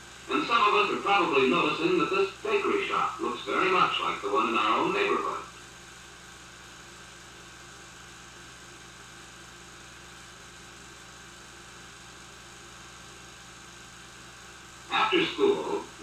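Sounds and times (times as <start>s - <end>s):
faint hiss: 0.0s - 5.7s, 14.3s - 16.0s
low film soundtrack hum: 0.0s - 16.0s.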